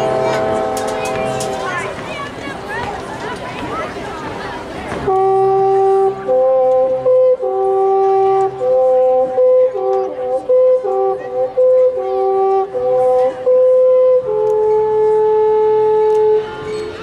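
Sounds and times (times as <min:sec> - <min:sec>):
marching band music: 0:00.0 - 0:02.5.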